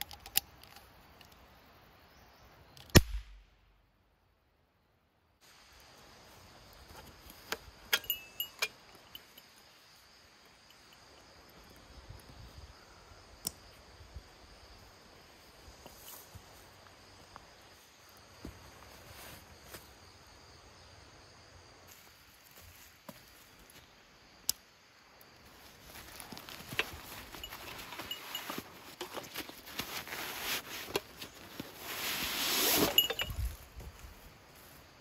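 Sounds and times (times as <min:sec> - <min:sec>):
metal buckles clicking and clinking: 0:00.0 - 0:01.3, 0:07.3 - 0:09.5, 0:26.0 - 0:30.0, 0:32.4 - 0:33.6
forest ambience: 0:00.0 - 0:35.0
straps and fabric rustling: 0:25.6 - 0:33.6.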